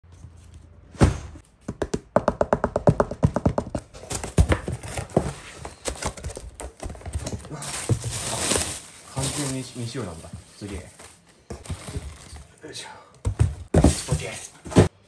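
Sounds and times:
plastic packing crinkling: 0:04.0 - 0:12.6.

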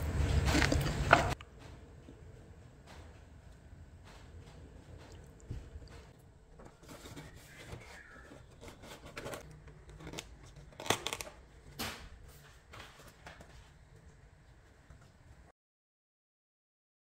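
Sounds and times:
cardboard box rustling: 0:06.6 - 0:09.4.

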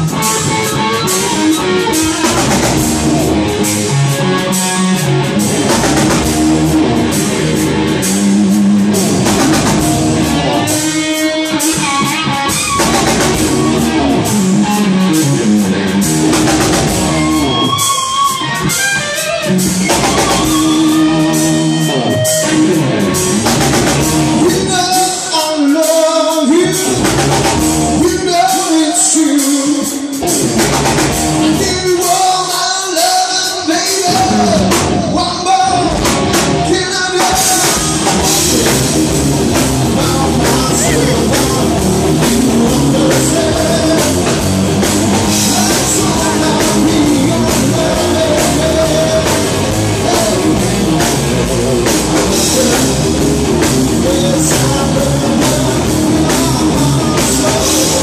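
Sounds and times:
live rock band: 0:00.0 - 0:58.0
man singing lead vocals: 0:16.2 - 0:30.6, 0:31.4 - 0:58.0.

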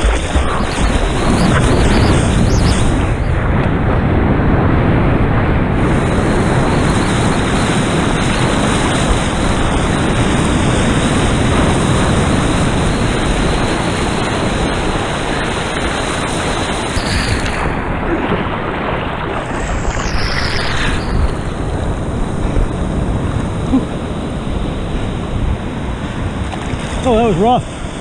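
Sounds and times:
churning whitewater rushing: 0:00.0 - 0:04.4, 0:05.3 - 0:28.0.

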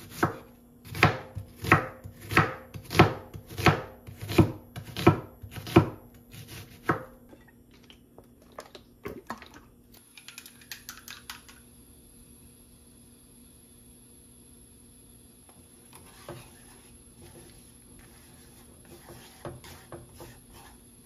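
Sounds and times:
knife chopping onion on wooden board: 0:00.0 - 0:07.2, 0:17.2 - 0:20.8.

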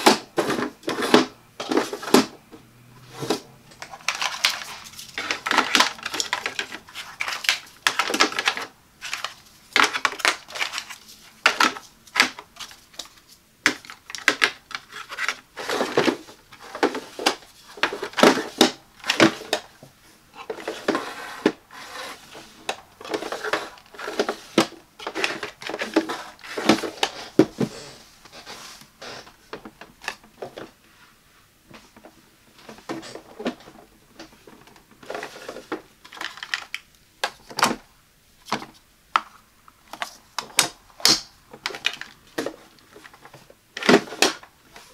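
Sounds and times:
plastic drawer sliding: 0:00.0 - 0:02.4, 0:03.0 - 0:12.7, 0:13.7 - 0:19.8, 0:20.4 - 0:30.8, 0:32.6 - 0:36.7, 0:41.6 - 0:44.9
plastic pods clicking into slots: 0:03.7 - 0:12.5.

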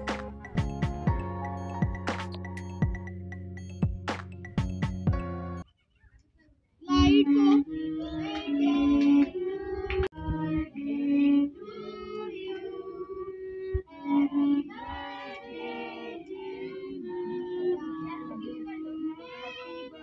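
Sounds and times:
music with singing voices: 0:00.0 - 0:05.6, 0:06.9 - 0:20.0.

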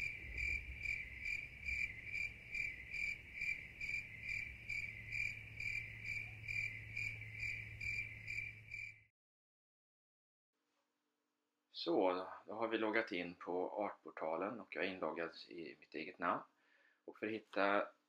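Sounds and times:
cricket chirping: 0:00.0 - 0:09.1.

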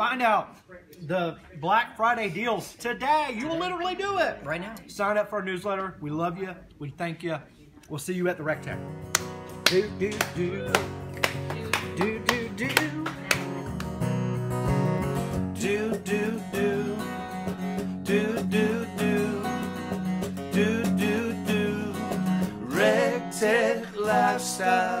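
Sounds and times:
strummed acoustic guitar music: 0:08.4 - 0:25.0.

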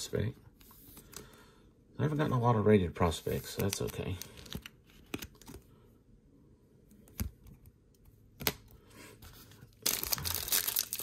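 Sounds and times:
foil wrapper crinkling and tearing: 0:09.7 - 0:11.0.

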